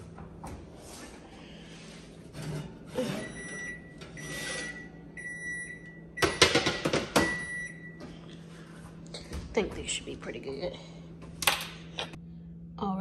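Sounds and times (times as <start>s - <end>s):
metal pan scraping oven rack: 2.0s - 4.8s
high electronic appliance tone: 3.0s - 8.2s.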